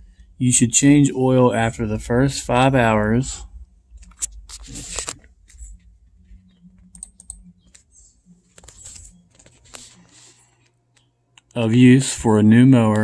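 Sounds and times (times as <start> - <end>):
faint low hum: 0.0 - 13.0
computer keyboard clicks: 6.9 - 7.8.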